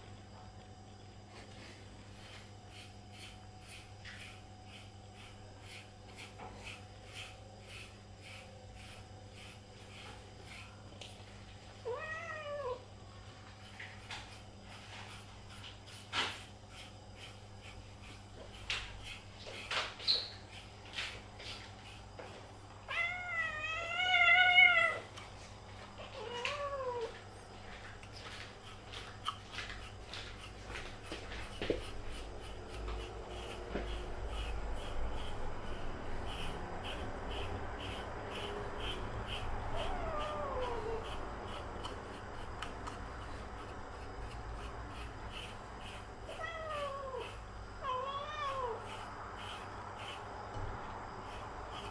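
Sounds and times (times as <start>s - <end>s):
scratchy strokes: 1.6s - 11.3s, 11.9s - 24.3s, 28.0s - 51.9s
cat meowing: 11.8s - 12.8s, 22.9s - 25.1s, 26.1s - 27.2s, 39.8s - 41.0s, 46.3s - 48.9s.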